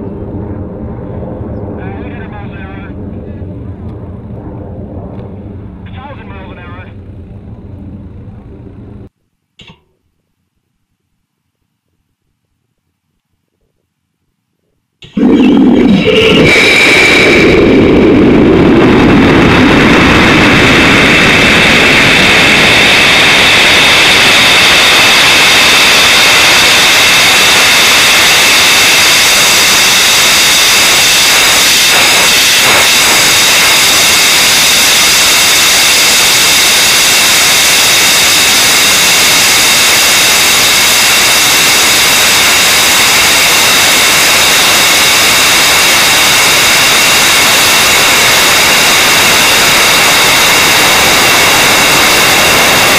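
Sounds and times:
rocket engine roaring: 0.0 - 9.1, 15.0 - 52.9
high whistling tones: 15.0 - 18.0.

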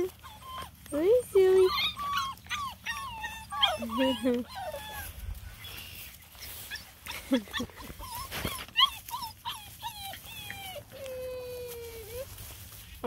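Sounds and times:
puppies whining and yipping: 0.0 - 12.8.

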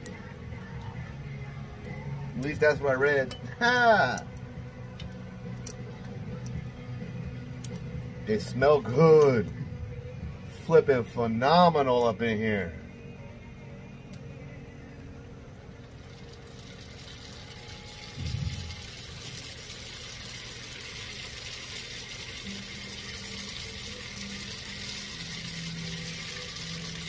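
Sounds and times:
oil sizzling and crackling: 4.9 - 9.4, 15.7 - 27.0.

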